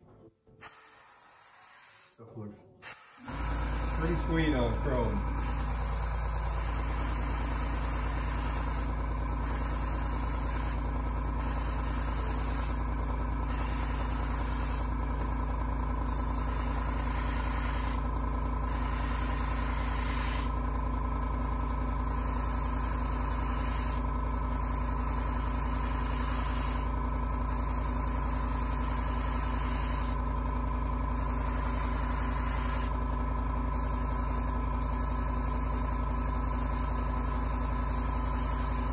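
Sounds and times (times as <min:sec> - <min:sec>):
airbrush air hiss: 0:00.6 - 0:02.2, 0:02.8 - 0:04.7, 0:05.3 - 0:10.8, 0:11.4 - 0:12.8, 0:13.4 - 0:14.9, 0:16.0 - 0:18.0, 0:18.6 - 0:20.5, 0:22.0 - 0:26.9, 0:27.5 - 0:30.2, 0:31.2 - 0:32.9, 0:33.7 - 0:38.9
motor hum: 0:02.8 - 0:38.9.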